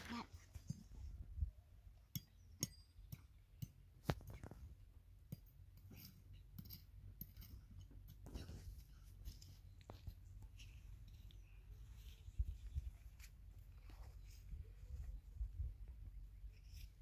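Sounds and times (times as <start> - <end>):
spoon scraping gravelly dirt: 5.3 - 12.7.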